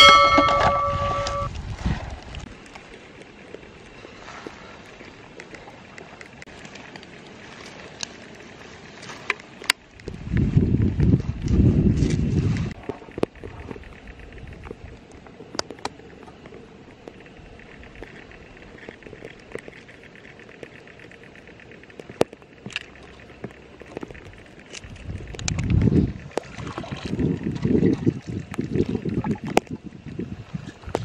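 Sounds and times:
low rumble: 0:00.0 - 0:02.5.

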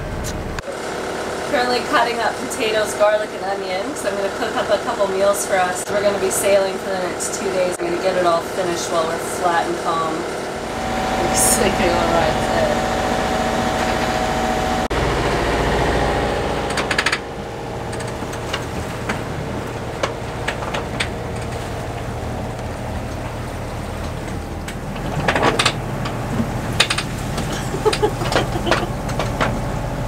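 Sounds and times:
sailing yacht drone and hiss: 0:00.0 - 0:30.0
sharp clicks and knocks: 0:16.6 - 0:23.2, 0:24.0 - 0:29.7.

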